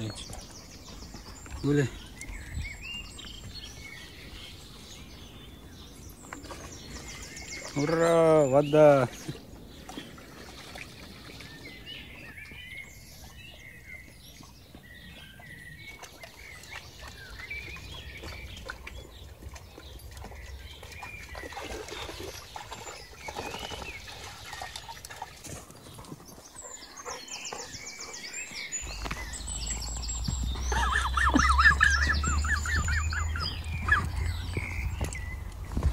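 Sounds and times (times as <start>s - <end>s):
birdsong: 0.0s - 35.9s
soft splashing in stream: 9.2s - 11.9s, 15.9s - 25.8s
low rumble on microphone: 28.8s - 35.9s.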